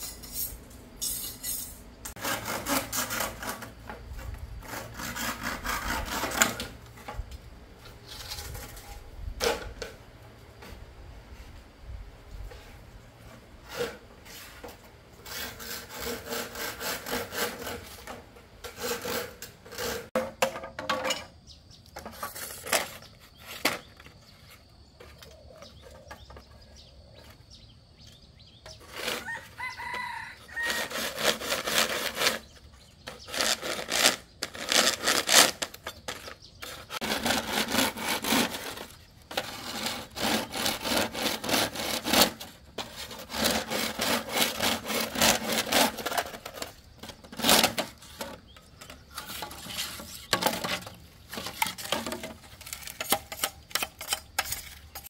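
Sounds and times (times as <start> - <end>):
rhythmic sawing strokes: 4.6 - 6.8, 15.2 - 20.2, 29.8 - 32.7, 33.3 - 46.6
rooster crowing: 29.2 - 31.2.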